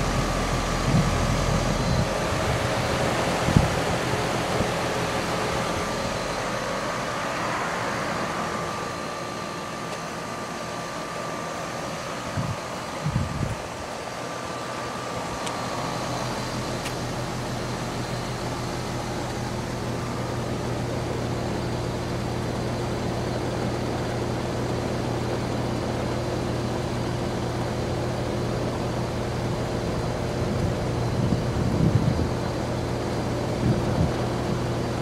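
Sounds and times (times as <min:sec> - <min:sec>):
low hum: 0:00.0 - 0:22.7
air conditioner fan rushing: 0:00.0 - 0:35.0.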